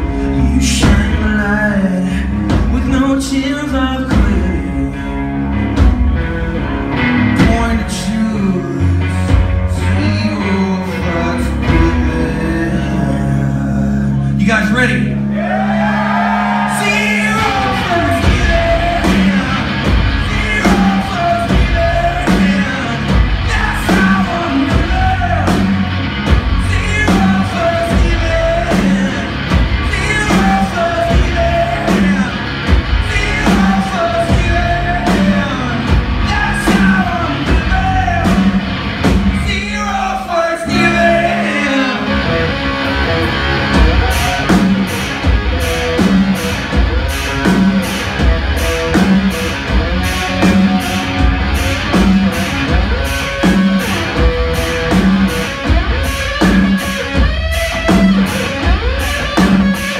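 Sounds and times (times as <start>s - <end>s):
drums: 0.0s - 59.9s
electric guitar: 0.0s - 59.9s
person shouting singing: 15.3s - 25.9s, 26.5s - 38.5s, 39.4s - 42.5s, 43.8s - 45.0s.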